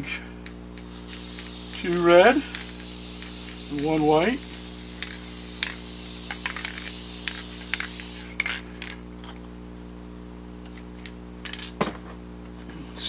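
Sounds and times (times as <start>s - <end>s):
aerosol can hissing: 0.7s - 8.6s.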